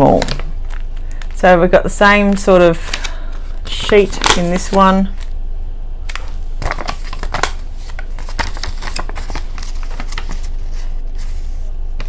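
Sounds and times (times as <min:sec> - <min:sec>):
paper crinkling: 0:02.9 - 0:05.3, 0:06.1 - 0:12.0.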